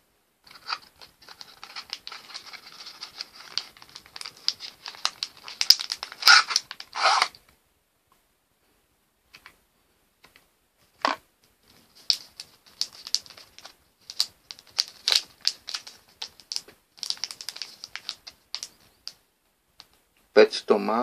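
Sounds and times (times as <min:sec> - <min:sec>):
packaging crinkling and clicking: 0:00.5 - 0:07.4, 0:11.6 - 0:19.2.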